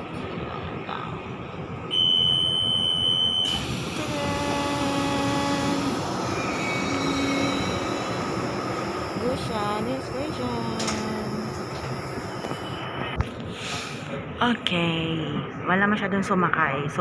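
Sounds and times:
lower held tones: 1.9s - 13.1s
loud high steady tone: 1.9s - 13.2s
train running rumble: 3.5s - 14.3s.

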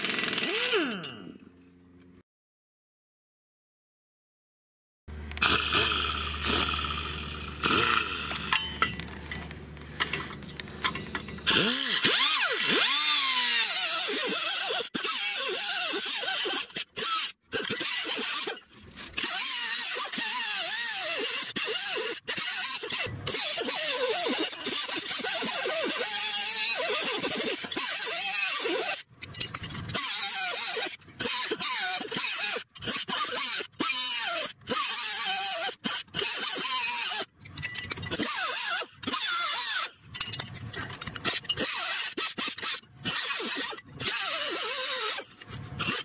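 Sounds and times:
cutoff wheel grinding steel: 0.0s - 1.4s, 5.1s - 46.0s
steady low hum: 5.1s - 11.5s.

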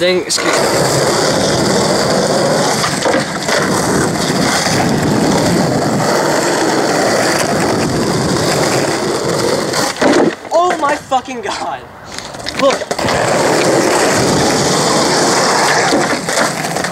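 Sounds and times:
skateboard wheels rolling on asphalt: 0.0s - 16.9s
skateboard knocks: 2.8s - 5.2s, 9.7s - 10.9s, 15.6s - 16.9s.

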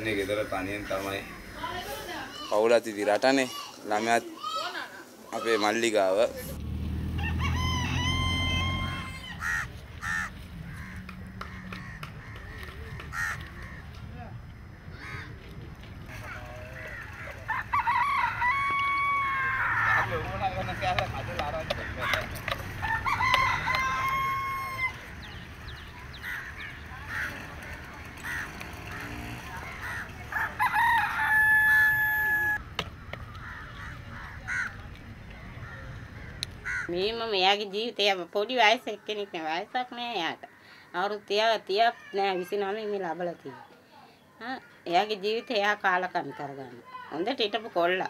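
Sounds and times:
rooster crowing: 7.0s - 11.0s, 16.1s - 20.2s, 22.7s - 25.2s, 29.8s - 32.6s
crow cawing: 8.8s - 14.0s, 14.9s - 15.4s, 16.1s - 20.2s, 26.1s - 27.5s, 28.2s - 34.8s, 35.6s - 37.0s.

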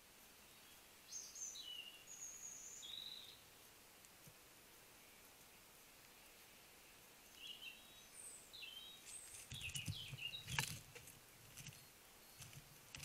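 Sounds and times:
mice squeaking: 9.1s - 10.9s.

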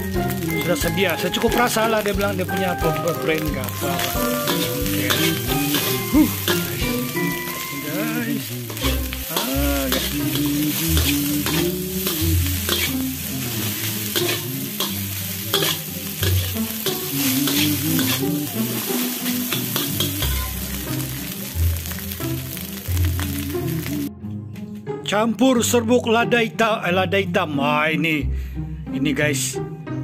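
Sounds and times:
rice sizzling in a pan: 0.0s - 24.1s
background music: 0.0s - 30.0s
metal spatula scraping a wok: 3.0s - 21.4s.

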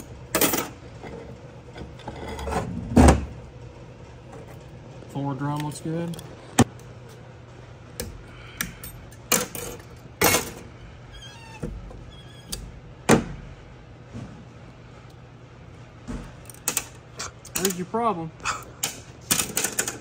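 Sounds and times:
low steady hum: 0.0s - 20.0s
metal parts clicking and knocking: 16.4s - 17.9s, 18.8s - 20.0s.

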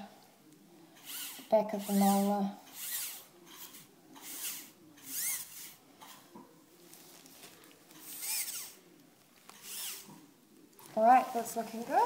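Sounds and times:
dental handpiece whine: 1.0s - 5.8s.

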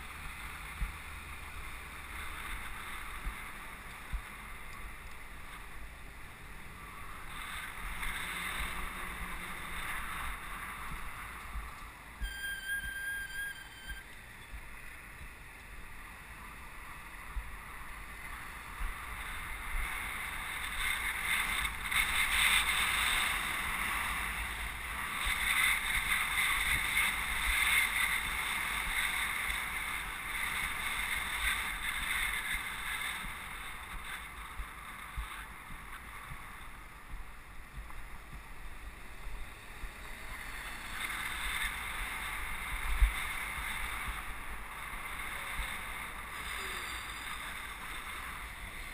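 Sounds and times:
road noise: 0.0s - 48.9s
wind rushing over microphone: 0.0s - 48.9s.

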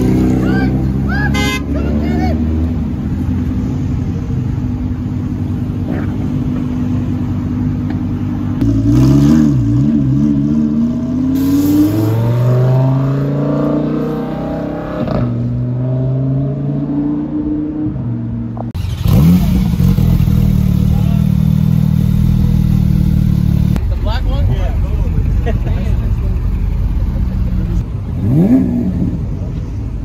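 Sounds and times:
sports car engine revving: 8.1s - 23.8s, 26.4s - 29.5s.

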